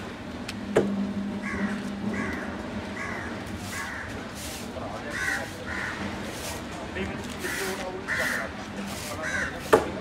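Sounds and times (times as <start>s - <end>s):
crows cawing: 1.4s - 4.2s, 5.1s - 6.1s, 7.4s - 8.6s, 9.2s - 9.7s.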